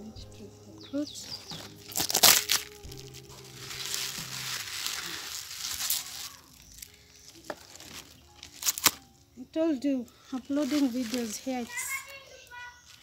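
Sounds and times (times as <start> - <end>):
leaves rustling and crumpling: 1.2 - 9.2, 10.3 - 13.0
leaves snapping from stems: 1.5 - 9.1, 10.5 - 12.2.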